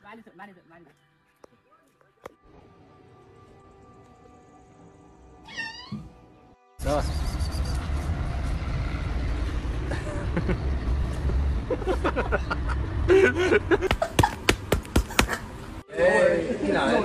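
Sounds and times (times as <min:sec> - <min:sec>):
street traffic rumble: 0:06.8 - 0:15.8
sharp knocks: 0:13.9 - 0:15.4.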